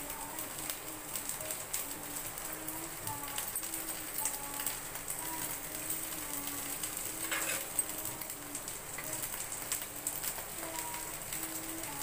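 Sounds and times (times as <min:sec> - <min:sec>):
vegetables sizzling in hot oil: 0:00.0 - 0:12.0.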